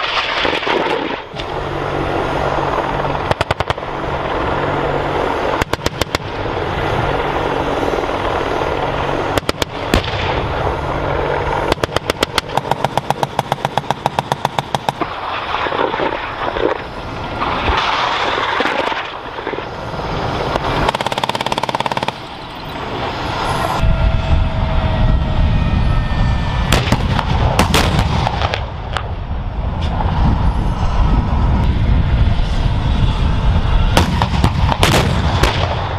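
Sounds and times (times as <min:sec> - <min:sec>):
heavy vehicles rumbling: 0:00.0 - 0:35.9
helicopter noise: 0:00.0 - 0:35.9
automatic cannon fire: 0:09.4 - 0:10.6, 0:26.7 - 0:29.0, 0:34.0 - 0:35.9
loud single gunshots: 0:34.0 - 0:35.9.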